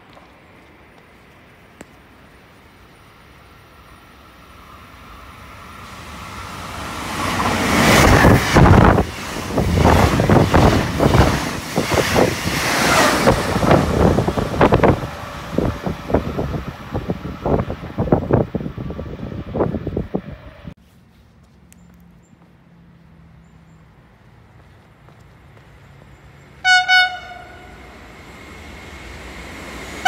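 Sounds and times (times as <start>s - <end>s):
train rumbling past: 2.2s - 20.8s, 25.4s - 30.0s
wheels clattering on rails: 6.8s - 18.6s.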